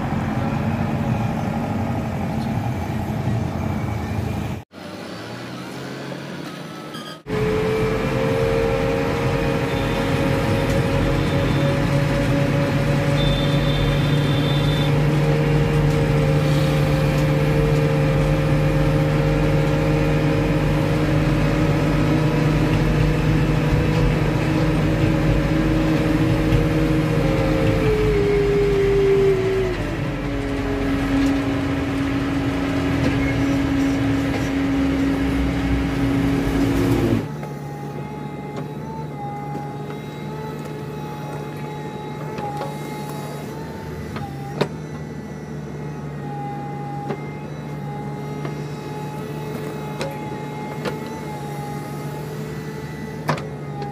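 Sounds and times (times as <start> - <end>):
diesel engine running: 0.0 - 53.9.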